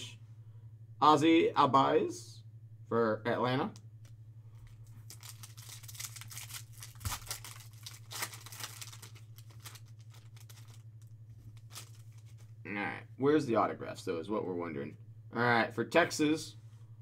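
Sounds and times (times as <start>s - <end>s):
low hum: 0.0s - 17.0s
foil pack crinkling: 4.8s - 12.6s.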